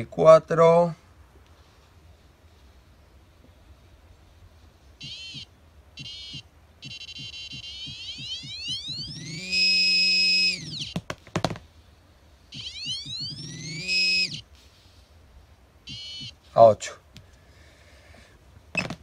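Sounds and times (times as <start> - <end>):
short electronic beeps: 5.0 - 11.0, 12.5 - 14.4, 15.9 - 16.4
rising electronic tone: 7.6 - 10.9, 12.6 - 14.4.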